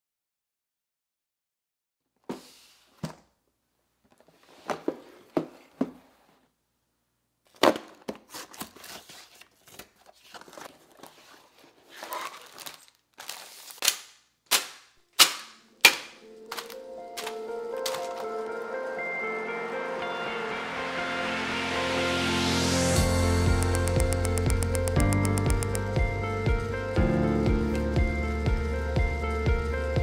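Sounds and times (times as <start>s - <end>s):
plastic bags clattering on table: 9.6s - 14.0s, 15.3s - 18.3s.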